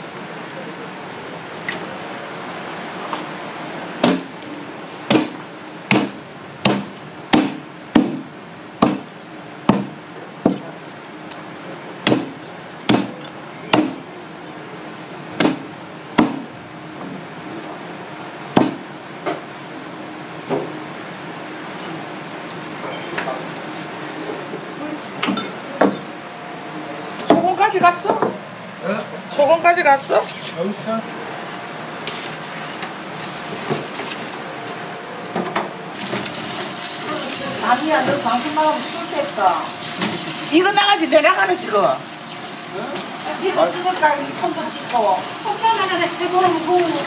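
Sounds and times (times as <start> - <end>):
blade chopping on wooden block: 5.1 - 8.2, 8.8 - 9.1, 12.0 - 14.0.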